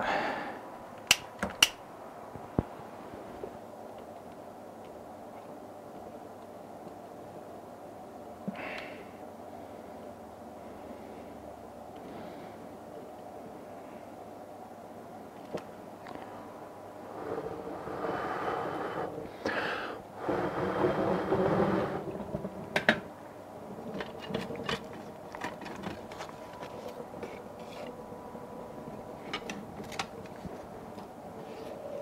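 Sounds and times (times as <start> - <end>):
paper and kindling rustling: 23.8 - 28.0.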